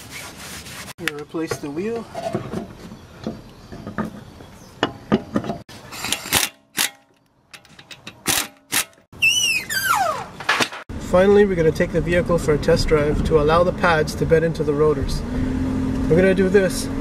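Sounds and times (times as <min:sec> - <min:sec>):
wheel clinking on hub: 0:03.3 - 0:09.1
air impact wrench bursts: 0:05.7 - 0:09.1.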